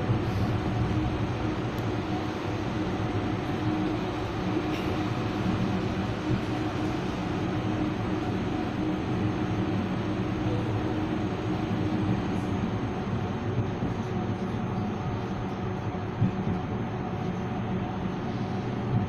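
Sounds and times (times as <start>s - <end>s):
tram rolling rumble: 0.0s - 19.0s.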